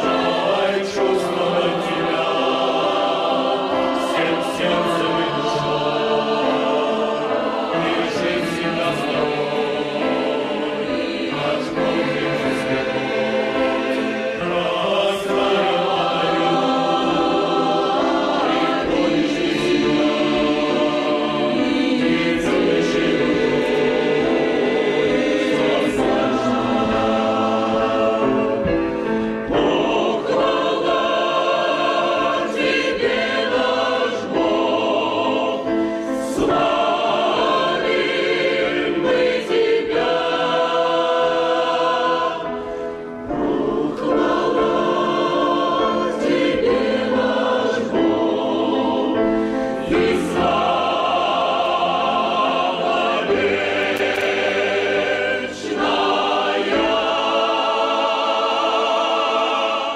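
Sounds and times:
mixed choir singing a hymn: 0.0 - 59.9.

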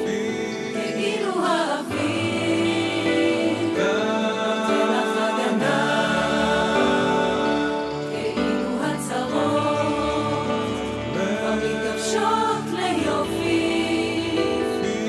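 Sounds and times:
mixed choir singing in harmony: 0.0 - 15.0.

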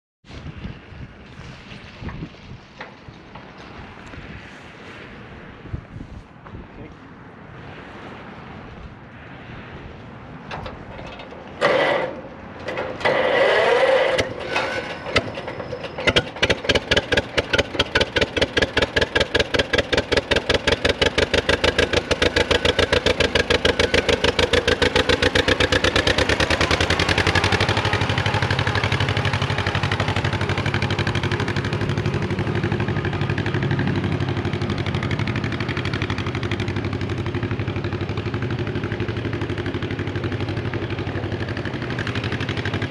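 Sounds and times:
tractor engine cranking and running: 10.4 - 42.9.

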